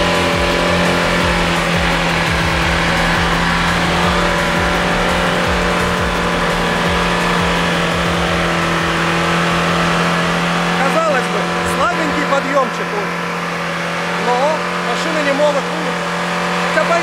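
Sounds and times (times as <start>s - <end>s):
car engine revving high: 0.0s - 17.0s.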